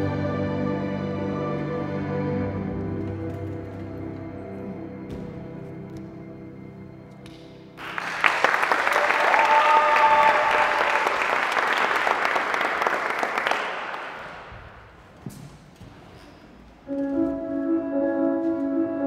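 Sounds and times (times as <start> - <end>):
audience cheering: 7.8 - 14.4
audience applause: 7.8 - 14.5.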